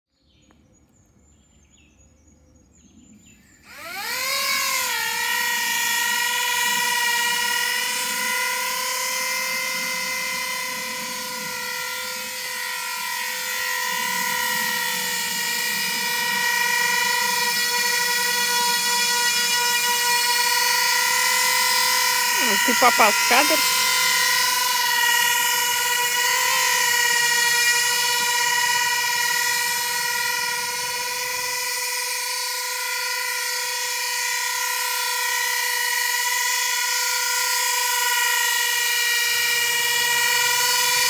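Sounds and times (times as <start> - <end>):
electric motors and rotors whining: 3.3 - 41.0.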